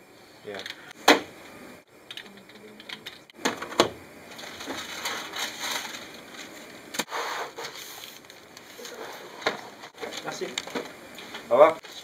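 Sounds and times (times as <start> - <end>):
packaging and paper rustling: 4.3 - 6.8, 7.5 - 12.0.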